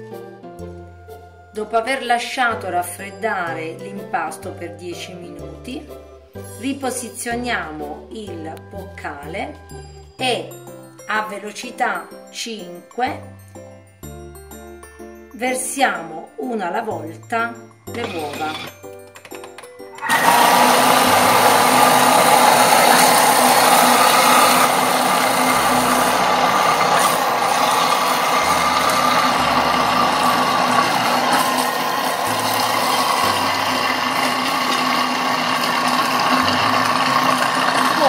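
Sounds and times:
kitchen machine motor whirring: 17.9s - 38.0s.

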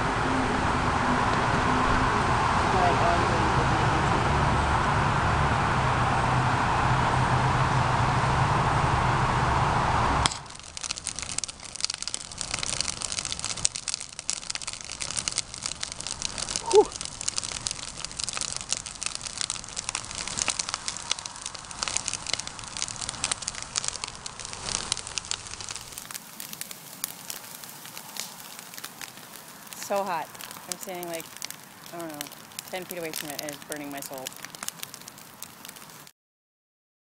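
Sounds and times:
bonfire crackling and popping: 0.1s - 36.1s.

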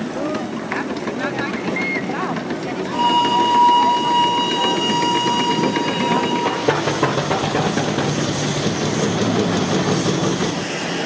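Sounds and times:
steam engines hissing and clattering: 0.0s - 11.0s
steam whistle: 2.9s - 6.9s.

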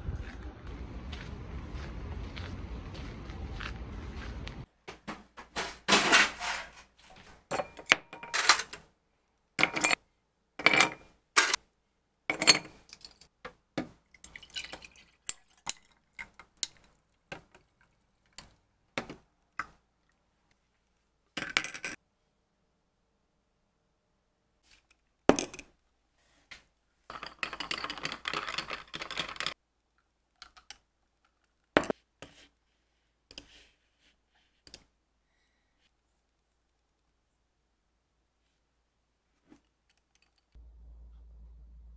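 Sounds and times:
liquid pouring: 14.1s - 17.0s.

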